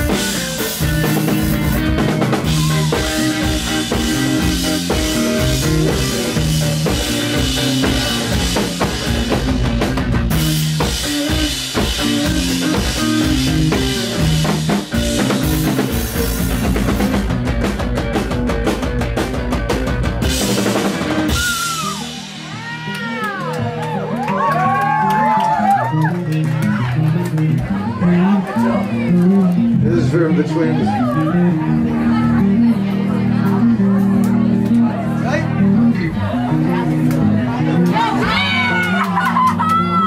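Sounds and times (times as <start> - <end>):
rock band playing: 0.0 - 40.0.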